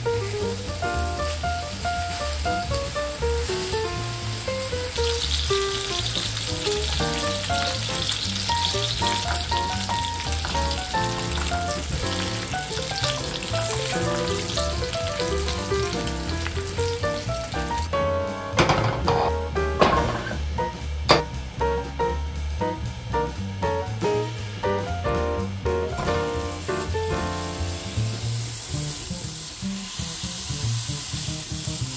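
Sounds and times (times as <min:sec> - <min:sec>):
bacon sizzling in a skillet: 0:00.0 - 0:18.1, 0:25.4 - 0:31.9
background music with bass line: 0:00.0 - 0:31.9.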